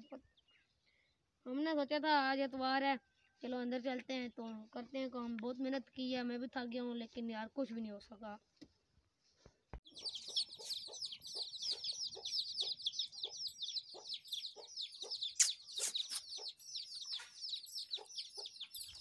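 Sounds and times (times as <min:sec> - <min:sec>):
chicks peeping: 0:09.8 - 0:19.0.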